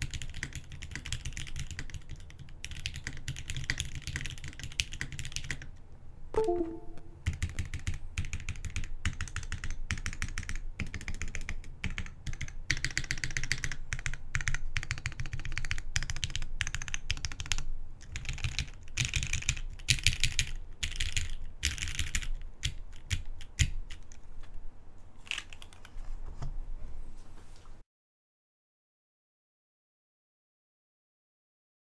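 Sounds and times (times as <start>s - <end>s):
fast typing on mechanical keyboard: 0.0s - 5.8s, 7.2s - 24.2s, 25.3s - 25.9s.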